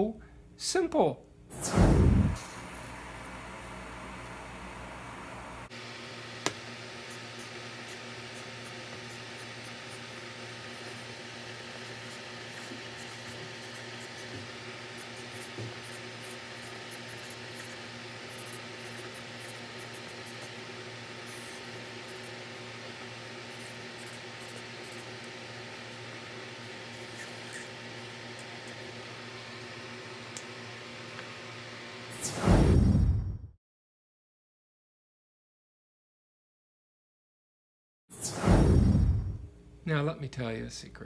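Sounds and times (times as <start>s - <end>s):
low hum and hiss: 0.0s - 32.1s, 38.8s - 41.0s
marker squeaking on paper: 7.1s - 20.6s, 21.2s - 22.4s, 23.4s - 25.2s, 26.9s - 27.8s.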